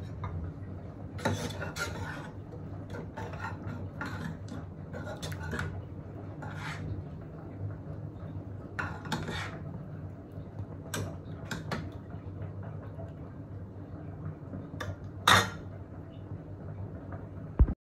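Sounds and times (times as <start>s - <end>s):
ladle scraping metal pot: 1.2s - 5.8s, 6.4s - 7.1s, 8.8s - 9.7s.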